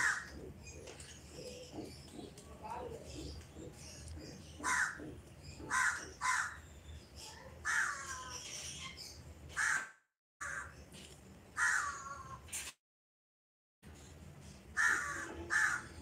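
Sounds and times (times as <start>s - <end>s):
crows cawing: 0.0s - 0.4s, 4.6s - 6.6s, 7.7s - 8.3s, 9.6s - 10.8s, 11.6s - 12.4s, 14.8s - 16.0s.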